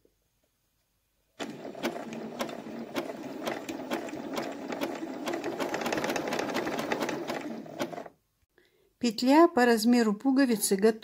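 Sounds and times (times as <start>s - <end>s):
sewing machine clicks: 1.4s - 8.2s
sewing machine whirring: 1.4s - 8.2s.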